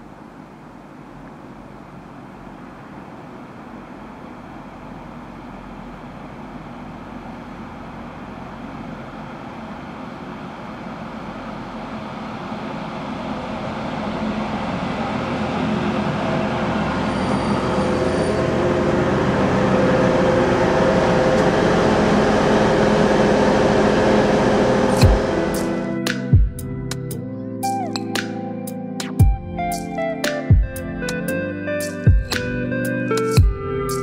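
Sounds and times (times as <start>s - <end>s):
diesel train engine: 0.0s - 28.4s
train wheels on rails: 8.8s - 26.5s.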